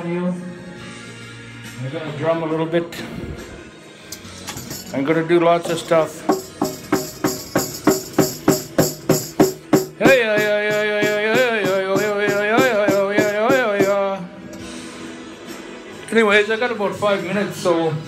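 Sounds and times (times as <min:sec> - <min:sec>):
hand drum beat: 0:05.7 - 0:14.0
man's wordless singing: 0:09.9 - 0:14.4.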